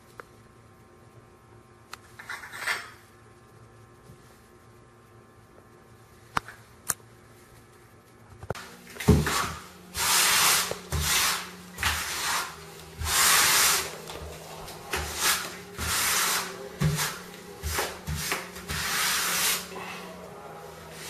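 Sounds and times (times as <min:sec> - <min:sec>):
rough rubbing strokes: 0:09.2 - 0:21.0.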